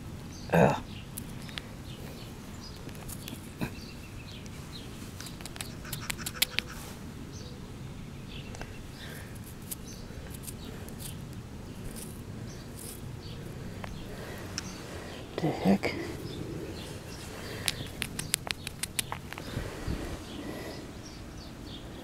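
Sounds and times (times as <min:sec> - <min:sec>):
low outdoor rumble: 0:00.0 - 0:22.0
sharp clicks: 0:05.2 - 0:06.8, 0:17.4 - 0:19.5
fingers scratching dirt: 0:05.2 - 0:06.9, 0:09.3 - 0:14.7, 0:16.0 - 0:19.6.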